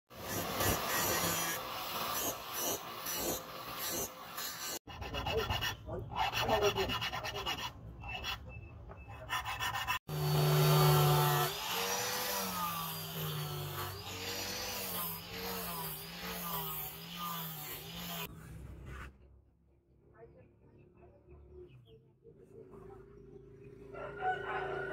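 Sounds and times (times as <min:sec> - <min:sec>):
file rasping on knife blade: 0:00.2 - 0:08.4, 0:09.1 - 0:10.2
angle grinder whine: 0:10.1 - 0:18.3.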